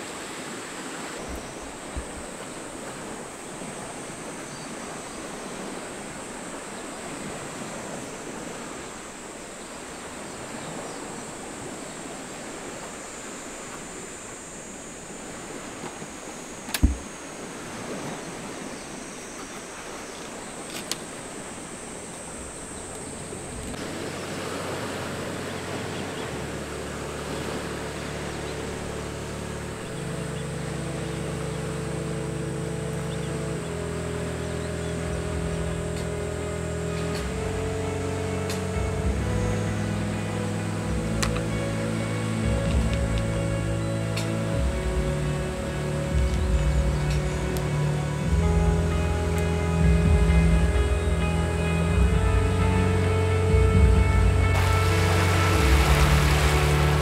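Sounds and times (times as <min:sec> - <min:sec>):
small lake waves: 0:00.0 - 0:57.0
wind: 0:00.0 - 0:57.0
soft music with low chords: 0:00.8 - 0:57.0
faint click: 0:20.7 - 0:21.1.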